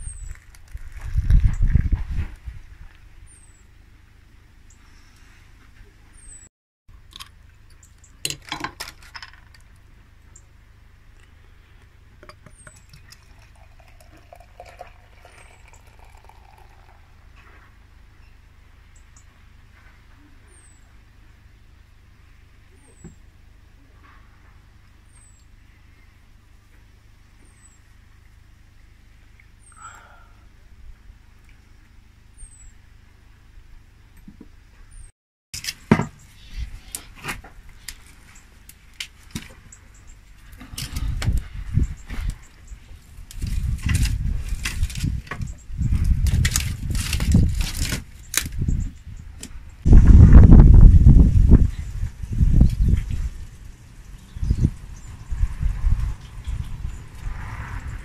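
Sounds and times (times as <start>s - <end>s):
beer pouring and fizzing: 12.3s - 17.3s.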